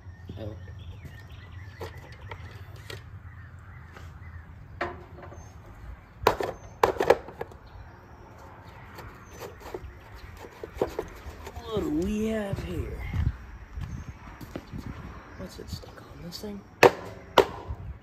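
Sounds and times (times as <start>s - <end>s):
knocks and clanks on sheet metal: 4.8s - 5.4s, 16.8s - 17.8s.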